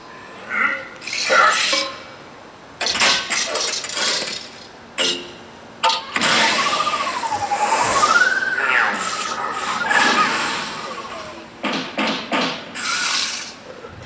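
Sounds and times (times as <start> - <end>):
noisy bursts: 0.0 - 13.9.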